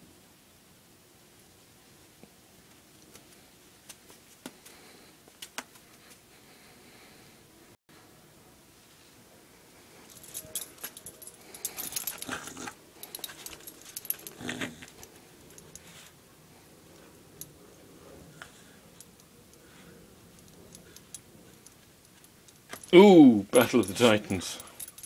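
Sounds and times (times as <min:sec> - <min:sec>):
collar tags jingling: 0:10.0 - 0:16.0, 0:18.8 - 0:25.0
small dog growling: 0:12.2 - 0:12.8, 0:14.3 - 0:15.0.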